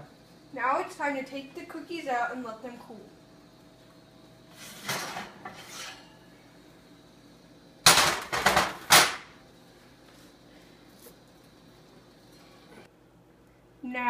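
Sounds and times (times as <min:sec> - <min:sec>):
baking sheet scraping oven rack: 0:04.5 - 0:06.2
metallic clanks on stovetop grates: 0:04.8 - 0:06.2.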